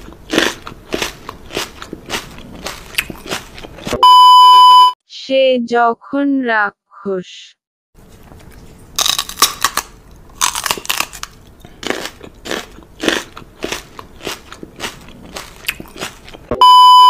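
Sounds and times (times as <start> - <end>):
crunching chewing: 0.0 - 4.0, 8.1 - 16.6.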